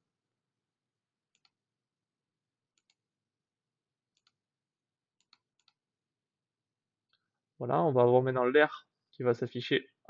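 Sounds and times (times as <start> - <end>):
computer mouse clicks: 1.3 - 1.6, 2.7 - 3.0, 4.1 - 4.4, 5.2 - 5.8.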